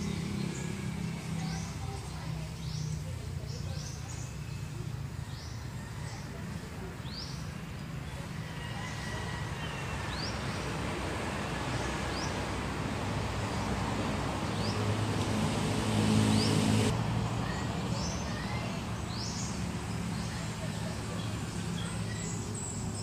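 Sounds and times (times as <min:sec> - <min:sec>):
outdoor background rumble: 0:00.0 - 0:23.0
passing vehicle engine hum: 0:00.0 - 0:23.0.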